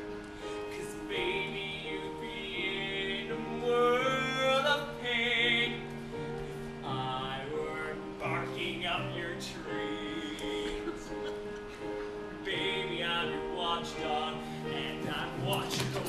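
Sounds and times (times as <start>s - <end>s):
man singing: 0.4s - 6.0s, 6.6s - 11.5s, 12.4s - 16.0s.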